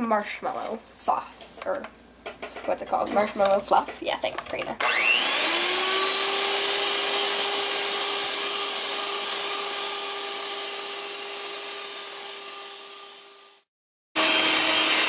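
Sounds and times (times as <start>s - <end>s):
electric hand mixer whipping: 4.3s - 15.0s.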